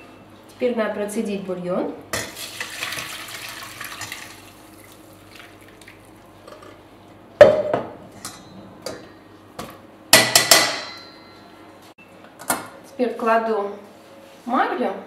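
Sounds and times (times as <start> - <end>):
liquid pouring and splashing: 2.3 - 6.2
metal cookware clanking: 7.4 - 9.2, 10.2 - 11.4.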